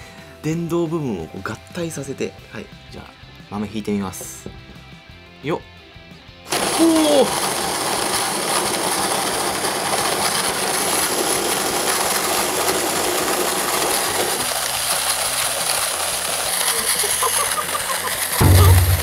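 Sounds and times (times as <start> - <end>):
coffee beans crunching and rattling: 6.5 - 19.0
electric coffee grinder whirring: 6.5 - 19.0.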